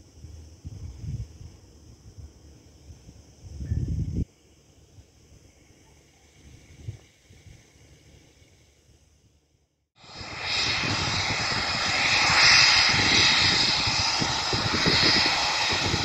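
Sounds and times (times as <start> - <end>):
jet engines roaring and whining: 10.0 - 16.0.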